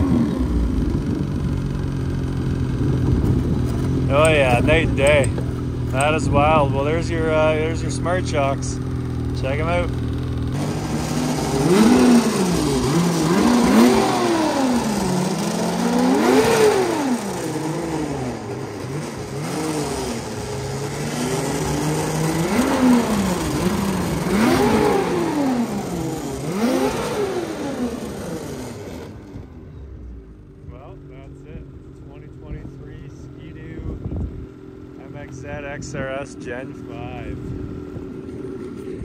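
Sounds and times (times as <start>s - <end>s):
snowmobile engine revving: 0.0s - 29.6s, 34.9s - 39.0s.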